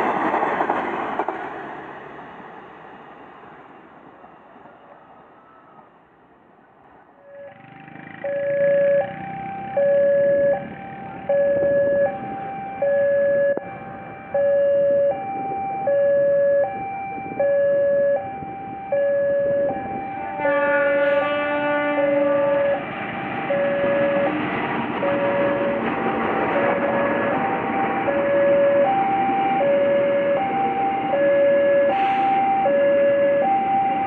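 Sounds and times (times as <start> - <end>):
passing train rumble: 0.0 - 34.0
two-note locomotive horn: 18.9 - 22.9, 23.5 - 24.4, 25.0 - 28.9, 31.1 - 32.5.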